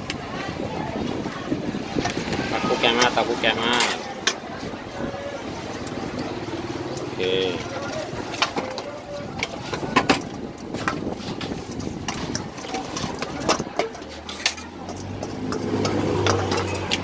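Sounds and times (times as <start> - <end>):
spoon clinking on metal bowl: 11.7 - 17.0.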